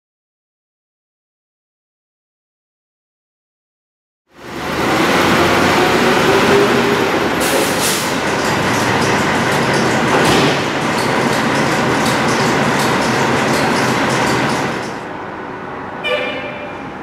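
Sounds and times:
truck engine running: 4.4 - 15.1
ticking clatter: 8.0 - 15.0.

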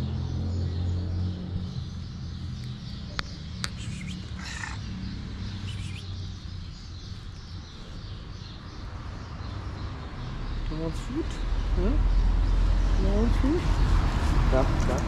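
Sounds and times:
high animal chirp: 3.3 - 6.5
raspy animal call: 3.8 - 4.8, 5.6 - 6.0.

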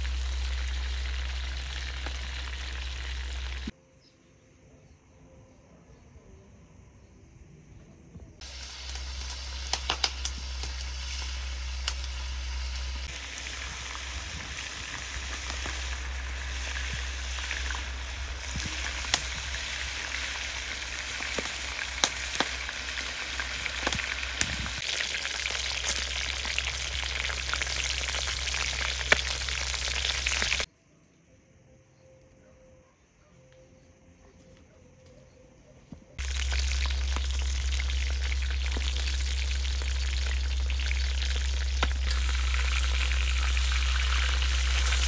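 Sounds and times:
meat frying in hot oil: 0.0 - 3.7, 8.4 - 30.7, 36.2 - 45.0.

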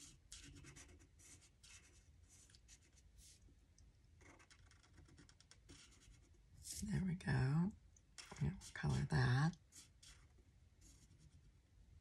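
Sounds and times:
marker scratching on paper: 0.0 - 3.4, 4.2 - 6.8, 9.6 - 11.4.

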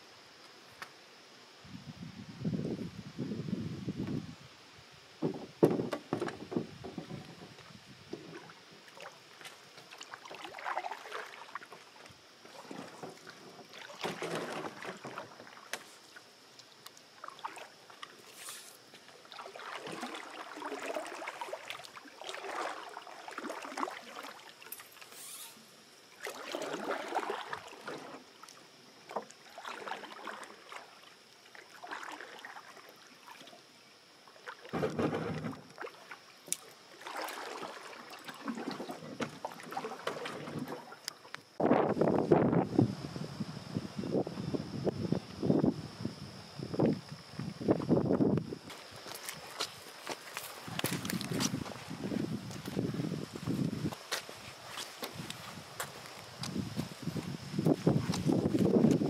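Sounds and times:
paddle swishing through water: 5.3 - 16.3, 17.1 - 33.7, 34.3 - 42.6, 48.7 - 59.0.

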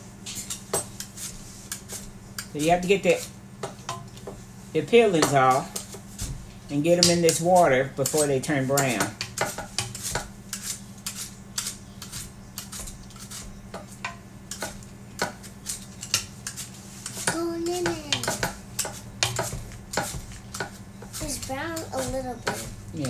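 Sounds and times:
steady low hum: 0.0 - 23.0
blade scraping apple skin: 9.8 - 13.6.

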